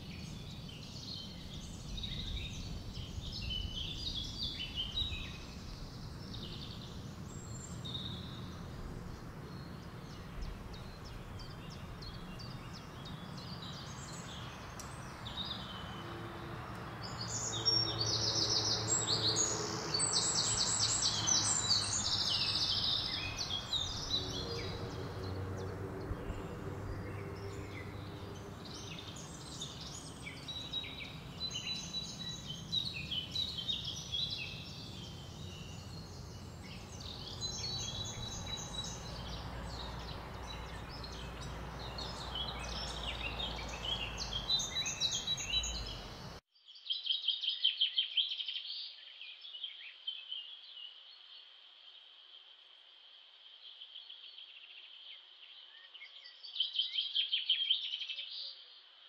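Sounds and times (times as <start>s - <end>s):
low outdoor hum: 0.0s - 46.4s
songbirds chirping and trilling: 0.0s - 52.6s.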